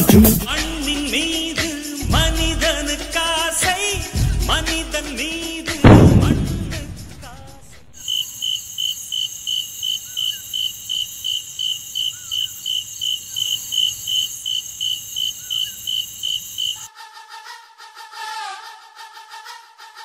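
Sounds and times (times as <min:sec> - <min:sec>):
music: 0:00.0 - 0:07.6, 0:16.9 - 0:20.0
crickets chirping: 0:00.0 - 0:16.9
steady high hiss: 0:00.0 - 0:16.9.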